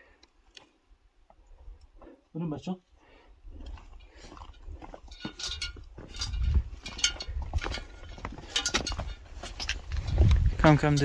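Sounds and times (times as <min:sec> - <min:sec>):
footsteps on rock: 0:03.6 - 0:11.0.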